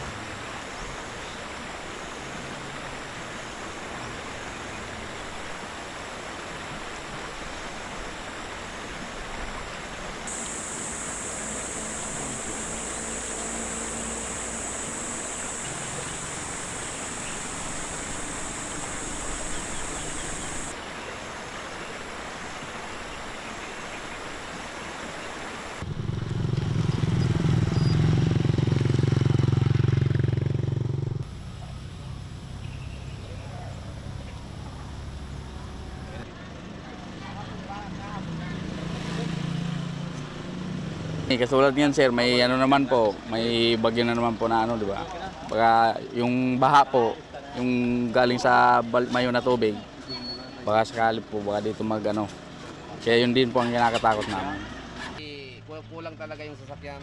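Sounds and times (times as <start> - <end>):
high steady hiss: 0.0 - 54.5
outdoor background noise: 0.0 - 57.0
motorcycles passing: 10.3 - 20.8, 25.8 - 50.6, 51.5 - 55.9.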